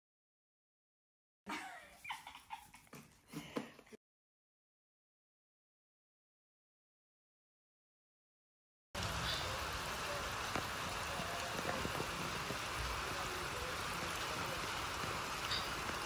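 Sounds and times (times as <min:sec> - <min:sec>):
steady rain: 0:09.0 - 0:16.0.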